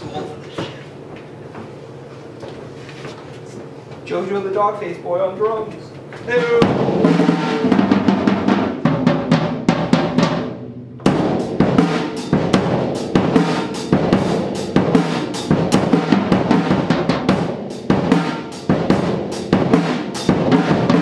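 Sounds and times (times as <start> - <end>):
drums played with sticks: 6.0 - 21.0.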